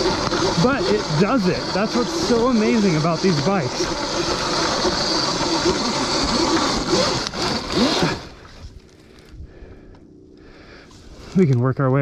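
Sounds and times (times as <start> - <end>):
electric motor whine: 0.0 - 9.3.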